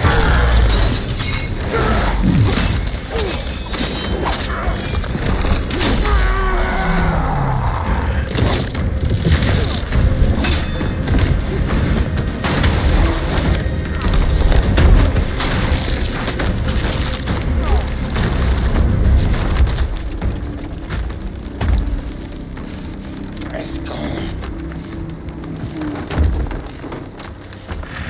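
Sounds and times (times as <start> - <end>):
crashes and shattering hits: 0.0 - 6.5, 8.1 - 21.0
dramatic score music: 0.0 - 28.0.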